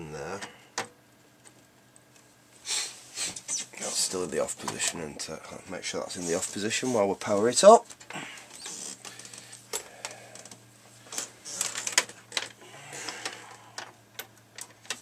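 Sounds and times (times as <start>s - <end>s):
faint low hum: 3.5s - 15.0s.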